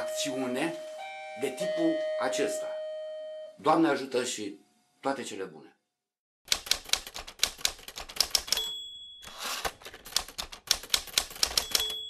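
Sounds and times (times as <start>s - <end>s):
typewriter key clacks: 6.5s - 8.7s, 9.3s - 12.0s
typewriter carriage return sweep: 6.5s - 12.0s
typewriter margin bell ding: 8.4s - 10.0s, 11.3s - 12.0s.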